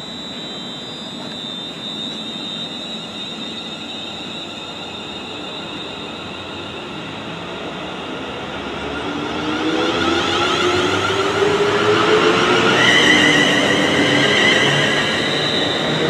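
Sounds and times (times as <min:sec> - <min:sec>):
electric train whine: 0:00.0 - 0:16.0.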